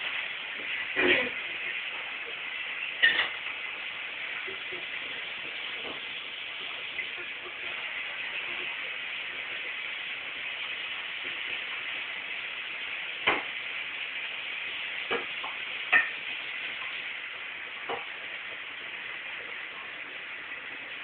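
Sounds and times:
steady hiss: 0.0s - 21.0s.

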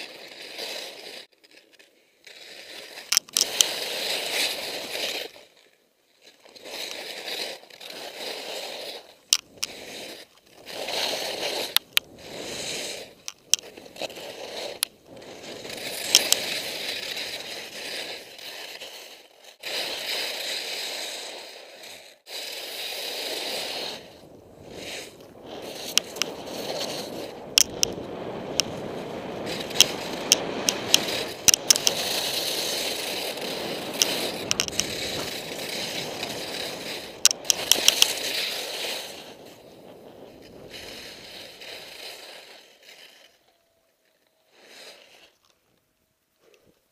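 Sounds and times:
skis scraping on snow: 0.0s - 43.5s, 44.1s - 45.5s
sharp clicks and knocks: 3.1s - 3.7s, 27.6s - 28.0s, 29.7s - 32.0s, 34.0s - 35.3s, 37.2s - 38.1s.

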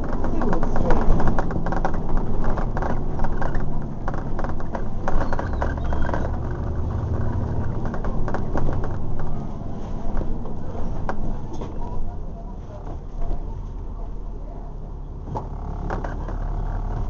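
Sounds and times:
panels rattling and clicking: 0.0s - 12.0s
bus diesel engine droning: 0.0s - 17.0s.

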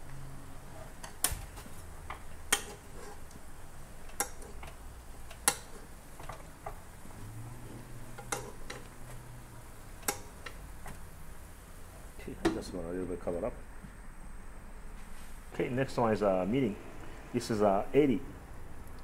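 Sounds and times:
utensils clicking against pan: 4.0s - 6.5s, 8.2s - 8.9s, 10.0s - 10.6s.

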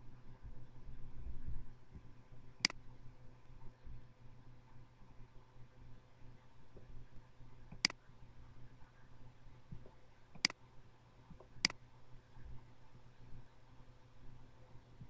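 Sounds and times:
faint low hum: 0.0s - 15.0s
computer mouse clicks: 7.7s - 8.0s, 9.8s - 10.6s.

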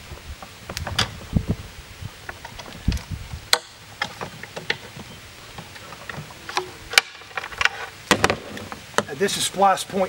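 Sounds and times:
dull thump: 8.1s - 9.1s.

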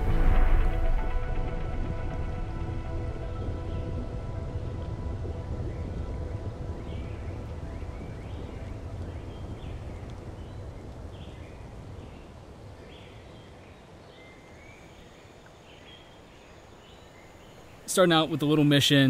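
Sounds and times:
low rumble: 0.0s - 12.0s
birds chirping: 3.2s - 19.0s.

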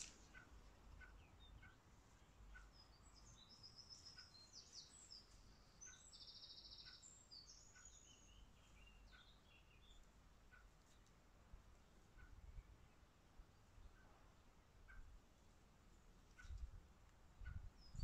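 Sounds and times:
high chirping birdsong: 0.0s - 11.1s, 17.4s - 18.0s
soft repeated bird call: 0.0s - 11.1s, 11.8s - 13.1s, 13.8s - 15.2s, 16.2s - 16.7s.

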